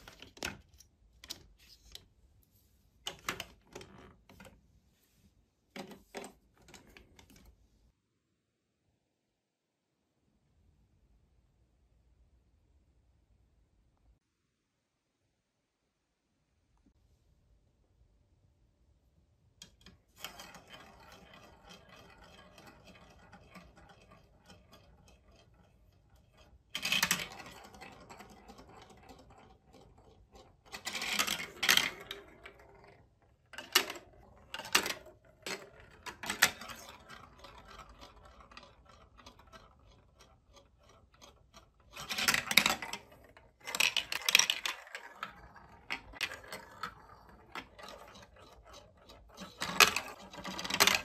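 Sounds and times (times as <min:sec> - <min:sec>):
balls rolling on plastic track: 0:00.0 - 0:02.1, 0:03.1 - 0:04.6, 0:05.8 - 0:07.6, 0:19.6 - 0:51.0
balls clattering through chutes: 0:19.6 - 0:51.0.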